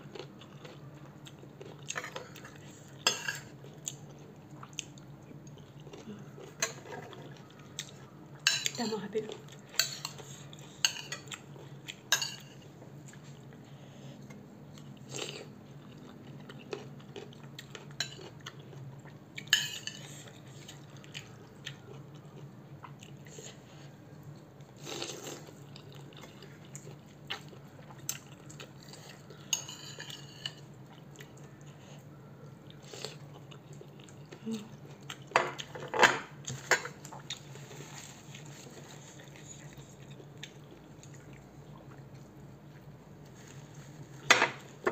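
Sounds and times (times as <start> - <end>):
faint low hum: 0.0 - 44.9
slurping and chewing: 9.4 - 24.0, 24.6 - 32.0, 32.7 - 35.7.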